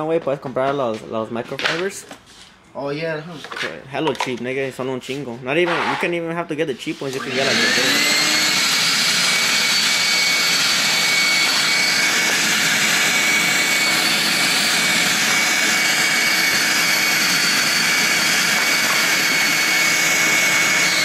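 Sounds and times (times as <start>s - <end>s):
shop vacuum running: 7.0s - 21.0s.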